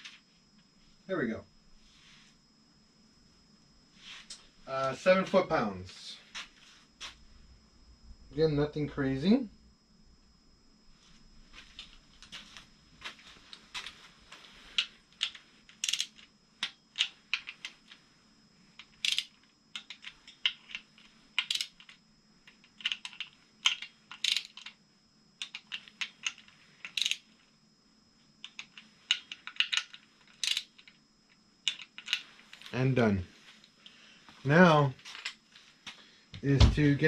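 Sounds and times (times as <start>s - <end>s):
socket wrench ratcheting: 15.2s - 16.2s, 18.8s - 20.8s, 21.4s - 21.9s, 22.7s - 24.7s, 25.4s - 27.2s, 28.4s - 30.9s.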